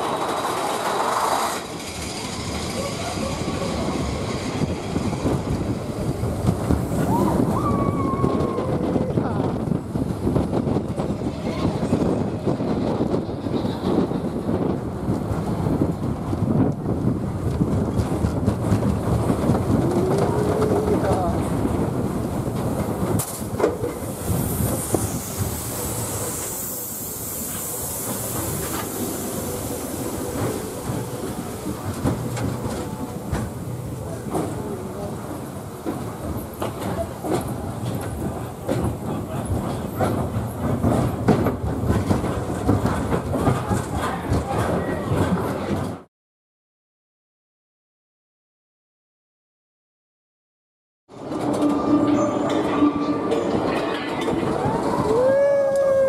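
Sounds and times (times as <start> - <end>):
roller coaster track rumbling: 0.0 - 46.1, 51.1 - 56.0
wind rushing over microphone: 1.8 - 46.0
high hiss: 24.0 - 32.0.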